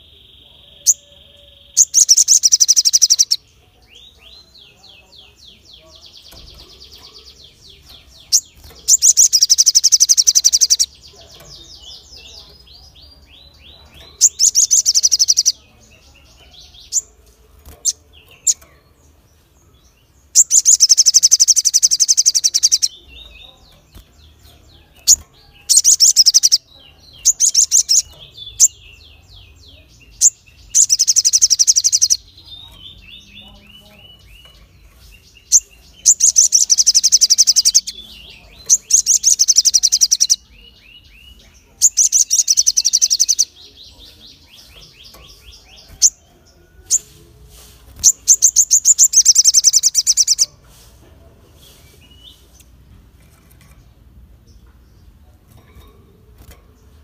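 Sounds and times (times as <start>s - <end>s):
bird singing shrill rapid notes: 0.0s - 3.4s, 8.0s - 11.0s, 20.4s - 23.3s, 25.0s - 28.8s.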